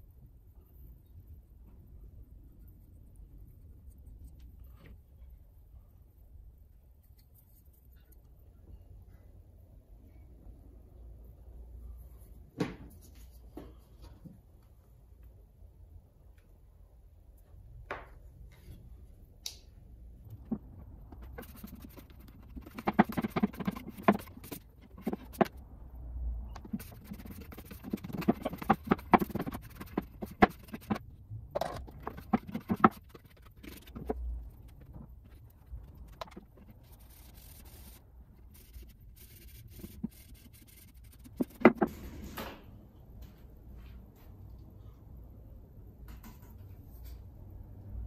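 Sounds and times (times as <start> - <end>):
pad and cloth rubbing wood: 20.4 - 25.6, 26.6 - 31.0, 31.9 - 38.0.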